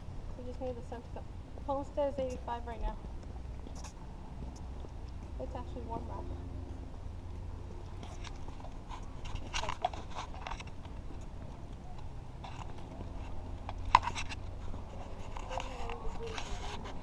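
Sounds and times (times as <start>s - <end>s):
footsteps and camera handling taps: 3.1s - 5.4s, 6.8s - 17.0s.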